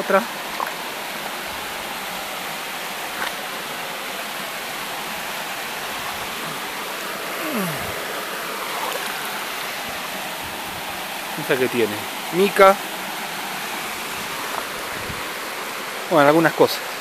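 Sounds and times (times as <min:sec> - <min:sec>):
stream flowing over rocks: 0:00.0 - 0:17.0.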